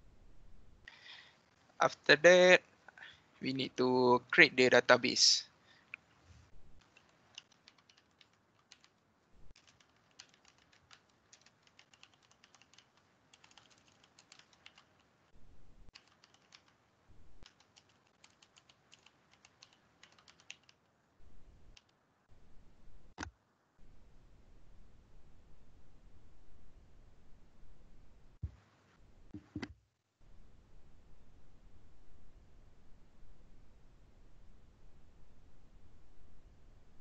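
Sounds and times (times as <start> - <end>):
faint computer keyboard typing: 6.8 - 15.2, 15.9 - 16.8, 17.4 - 20.9, 21.7 - 22.0.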